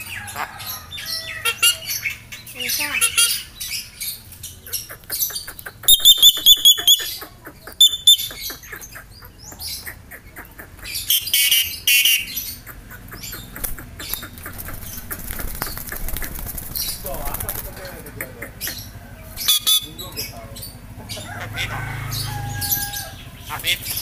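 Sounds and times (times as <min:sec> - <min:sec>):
rapid clicks: 0:12.7 - 0:17.8.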